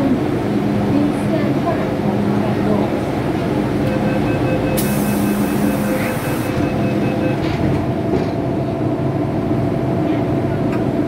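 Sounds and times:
train doors sliding shut: 3.8 - 8.5
rapid repeating beeps: 3.9 - 7.4.

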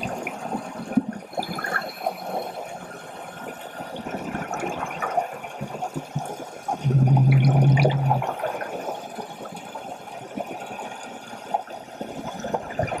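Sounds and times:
regulator bubbles underwater: 2.9 - 13.0
loud low hum: 6.8 - 8.3.

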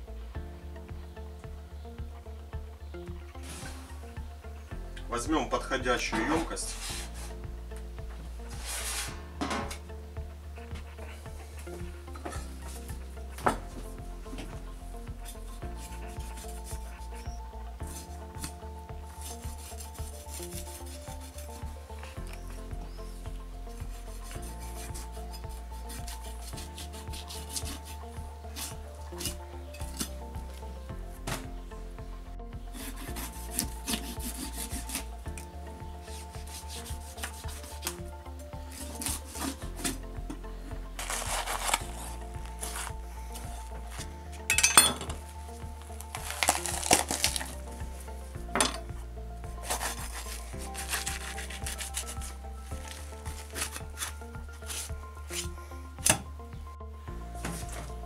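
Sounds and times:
background music with steady beat: 0.0 - 58.0
knife scraping meat: 19.2 - 21.7, 24.2 - 30.1, 32.8 - 35.1, 36.0 - 38.0, 38.7 - 40.0, 41.0 - 43.0, 46.1 - 47.6, 49.6 - 55.5.

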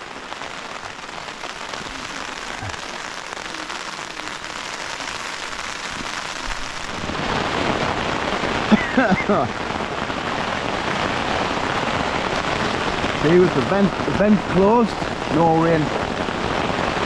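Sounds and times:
heavy rain on a tent: 0.0 - 17.0.

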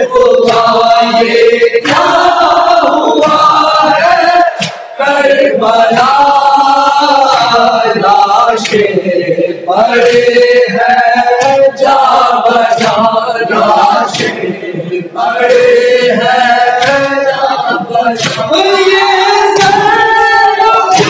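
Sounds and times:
men singing unaccompanied: 0.0 - 21.0
hands slapping chests: 0.4 - 4.9, 8.6 - 9.0, 9.9 - 10.5, 11.4 - 12.0, 12.7 - 14.5, 15.4 - 20.1.

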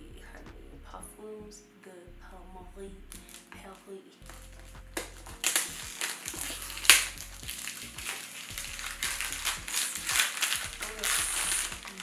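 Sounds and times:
packaging rustling and scraping: 4.3 - 12.0.

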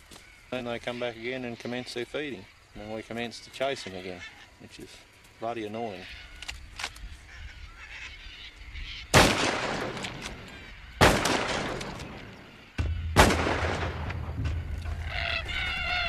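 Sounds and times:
rifle shots with echo: 9.1 - 14.6.

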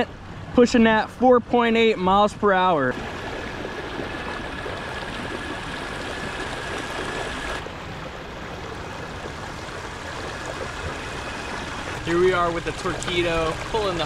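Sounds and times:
water rushing along hull: 1.6 - 14.0
electric motor whine: 4.5 - 7.6.

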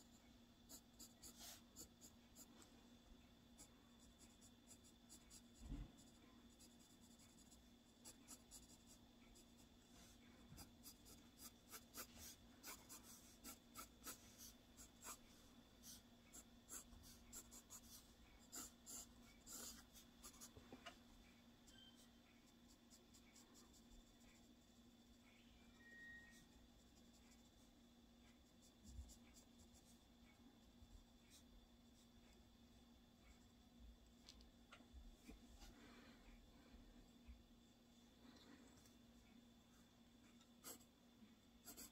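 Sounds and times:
pencil scratching on paper: 0.7 - 2.5, 3.6 - 20.6, 40.6 - 40.9, 41.6 - 41.9.

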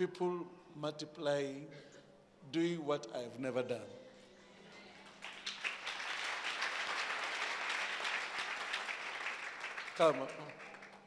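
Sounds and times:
congregation clapping: 5.0 - 11.0.

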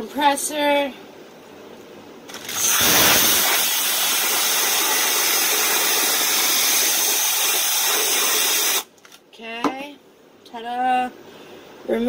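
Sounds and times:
compressed air hissing: 2.3 - 8.9.

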